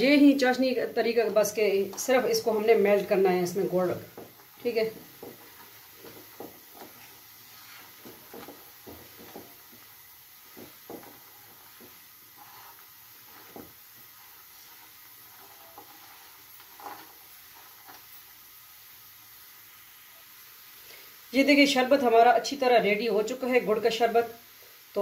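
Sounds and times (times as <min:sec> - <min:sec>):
spatula scraping frying pan: 0:00.0 - 0:18.4
low bubbling hiss: 0:00.0 - 0:25.0.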